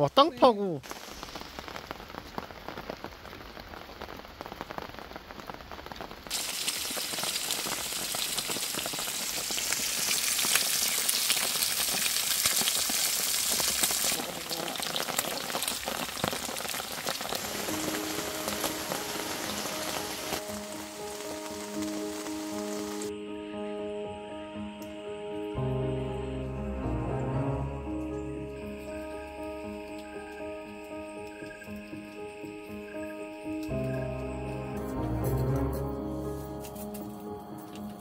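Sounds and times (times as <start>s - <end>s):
rain falling: 0.2s - 23.1s, 27.6s - 38.0s
meat sizzling in a frying pan: 0.8s - 23.1s.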